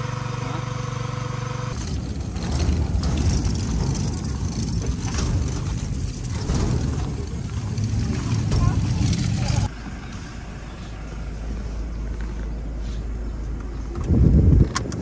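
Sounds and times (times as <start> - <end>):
engine hum: 0.0 - 15.0
uneven low rumble: 1.8 - 9.7.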